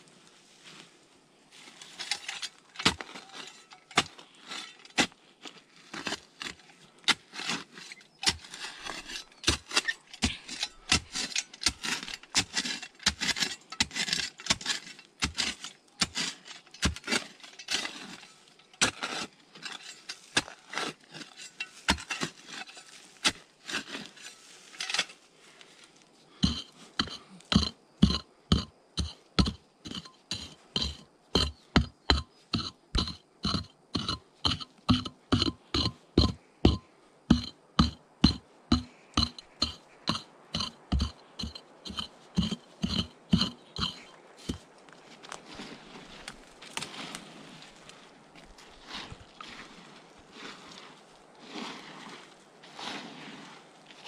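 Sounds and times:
metal tool striking stone: 26.4 - 44.6.

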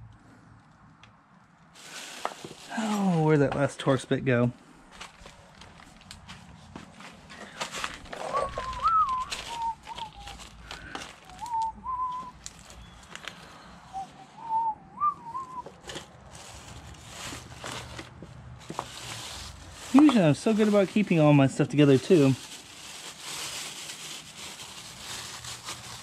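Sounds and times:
plastic bags rustling: 1.7 - 26.0
man whistling a tune: 8.3 - 10.4, 11.2 - 13.0, 13.6 - 15.7.

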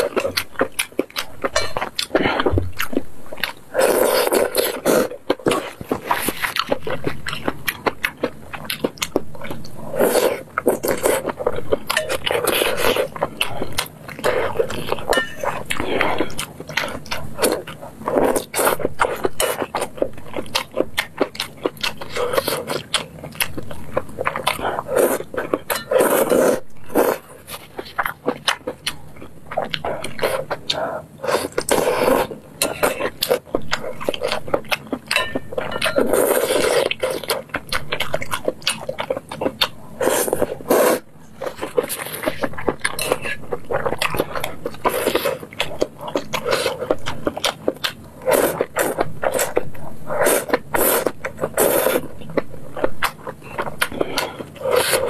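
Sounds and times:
noodle slurping: 48.2 - 52.0.

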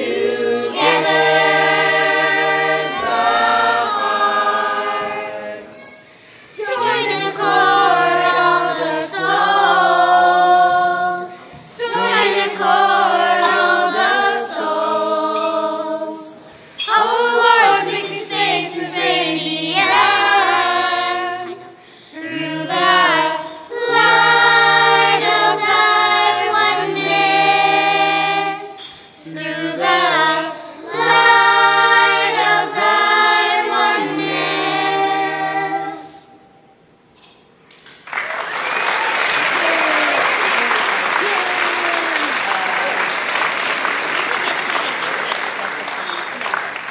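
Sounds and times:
children's choir singing: 0.0 - 36.6.

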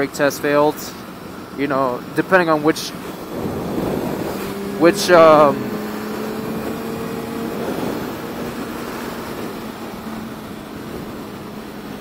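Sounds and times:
wind and road noise: 0.0 - 12.0
motorcycle engine cruising: 2.8 - 12.0.

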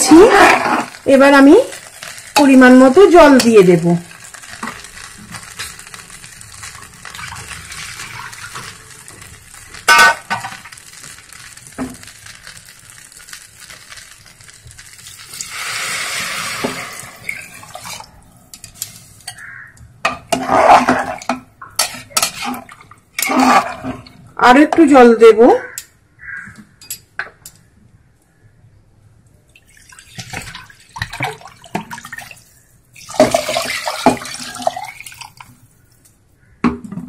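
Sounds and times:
water pouring with a hiss: 0.0 - 19.4, 29.6 - 35.9
spatula stirring in a pot: 0.0 - 24.1
faint sizzle: 0.0 - 25.0, 29.3 - 36.6.

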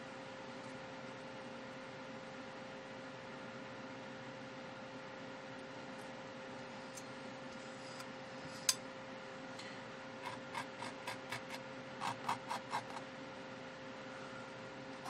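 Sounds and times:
faint steady hum: 0.0 - 15.0
palette knife scraping paste: 10.2 - 13.0.

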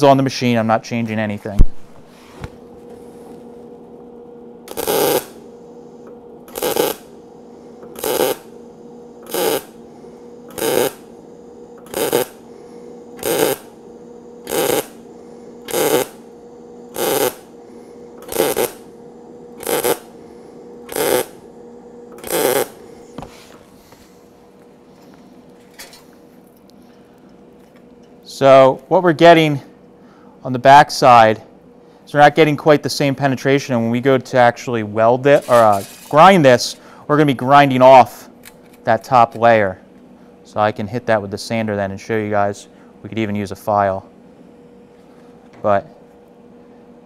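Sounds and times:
welder hum: 1.6 - 26.4
welding arc crackling: 4.6 - 5.5, 6.4 - 7.2, 7.9 - 23.1.

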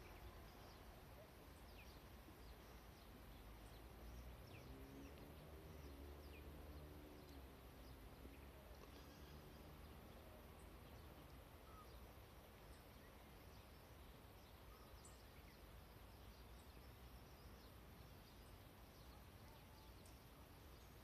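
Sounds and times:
faint high chirps: 11.2 - 17.5.

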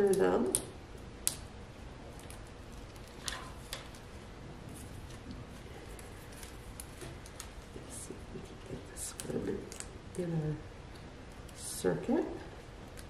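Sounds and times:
low room noise: 0.0 - 13.0
soft paper rustles: 2.1 - 9.9
paper card handling: 5.8 - 7.8.

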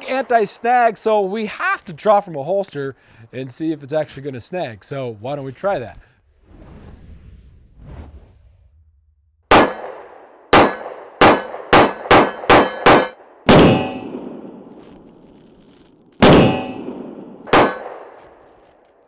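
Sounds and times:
pistol shots: 9.5 - 14.8, 16.2 - 18.4.

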